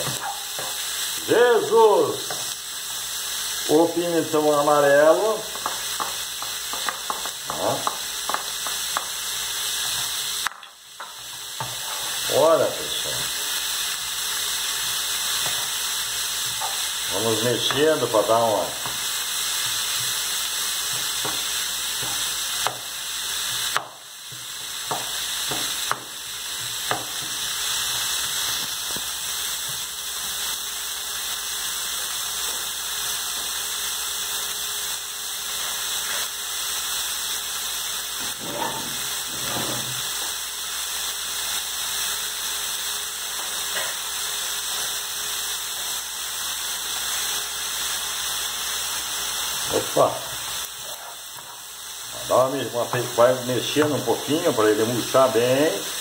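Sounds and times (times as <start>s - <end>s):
vegetables sizzling in a frying pan: 0.0s - 56.0s
wooden spoon knocking on pan: 5.5s - 9.1s, 23.7s - 27.4s.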